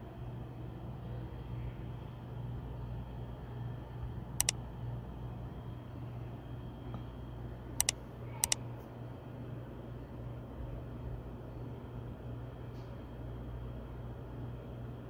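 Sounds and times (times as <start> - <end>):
steady low hum: 0.0 - 15.0
mouse double clicks: 7.8 - 8.6.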